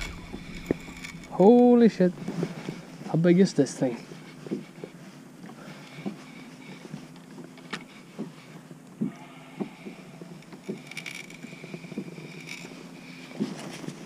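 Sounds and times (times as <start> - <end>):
fine high rattling: 0.0 - 2.6
steady low hum: 0.0 - 14.0.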